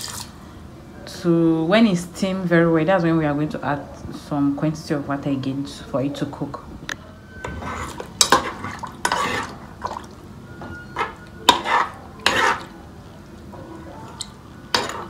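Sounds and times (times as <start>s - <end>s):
spoon scraping metal pot: 7.4s - 9.6s, 10.7s - 12.7s, 14.7s - 15.0s.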